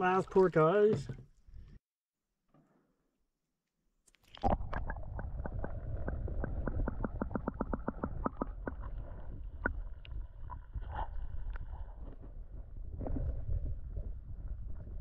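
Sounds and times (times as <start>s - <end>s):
muffled underwater rumble: 4.5s - 15.0s.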